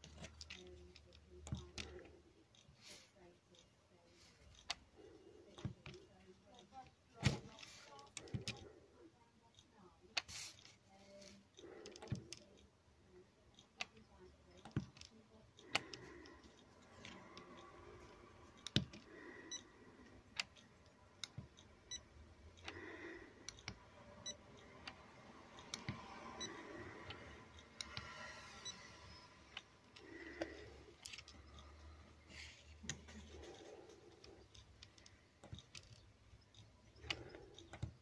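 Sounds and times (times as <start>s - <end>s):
probe clicks and taps on plastic: 5.5s - 8.7s, 22.6s - 28.2s.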